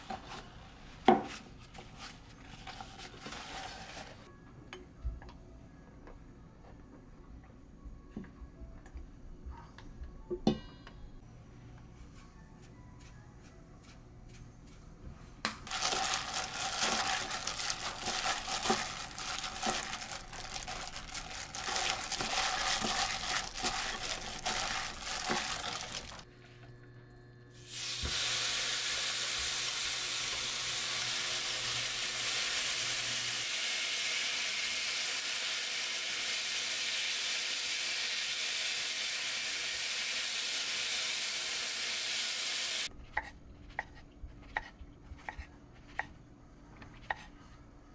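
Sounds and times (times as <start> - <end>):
meat sizzling in frying pan: 27.6 - 42.9.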